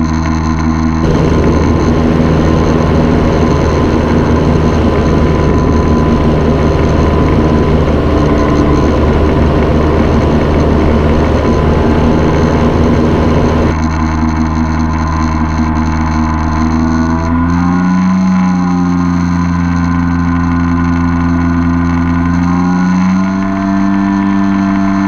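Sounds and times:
paramotor engine drone: 0.0s - 25.0s.

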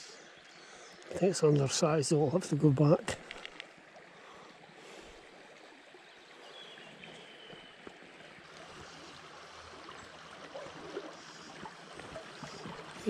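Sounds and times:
water running over stones: 0.4s - 13.0s.

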